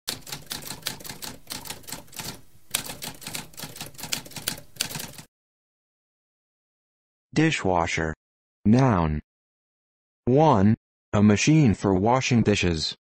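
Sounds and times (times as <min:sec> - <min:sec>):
typewriter keys clicking: 0:00.1 - 0:05.3.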